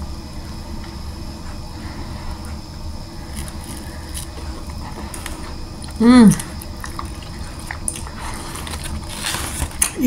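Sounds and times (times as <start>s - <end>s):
steady low hum: 0.0s - 10.0s
person chewing food: 2.3s - 10.0s.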